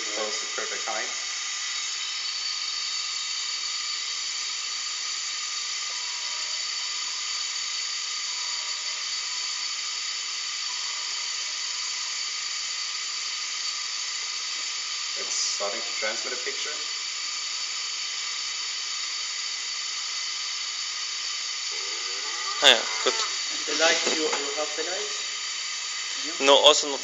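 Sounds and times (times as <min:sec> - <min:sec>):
compressed air hissing: 0:00.0 - 0:27.0
high whining tones: 0:21.6 - 0:27.0.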